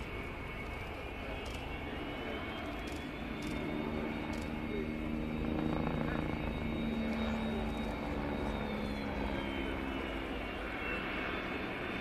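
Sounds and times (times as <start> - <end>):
helicopter engine whine: 0.0 - 12.0
helicopter rotor beats: 0.0 - 12.0.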